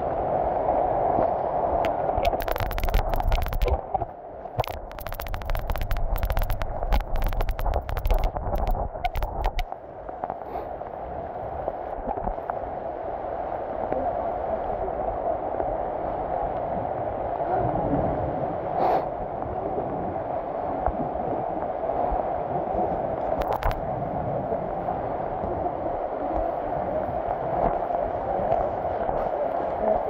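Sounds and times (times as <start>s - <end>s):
heavy rain on foliage: 2.2s - 3.8s, 4.6s - 9.7s
sharp clicks: 2.2s - 9.8s, 23.4s - 23.8s.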